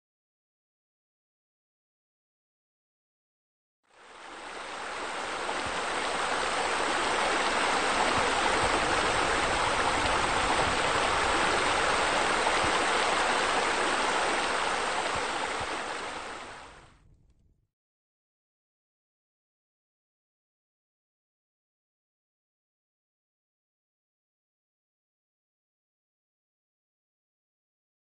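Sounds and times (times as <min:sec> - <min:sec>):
waterfall rushing: 0:03.9 - 0:16.8.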